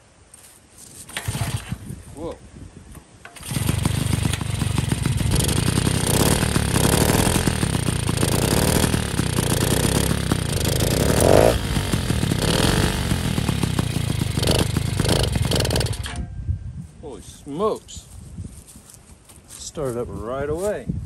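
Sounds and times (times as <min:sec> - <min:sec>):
two-stroke engine running: 0:01.1 - 0:01.7, 0:03.4 - 0:16.2.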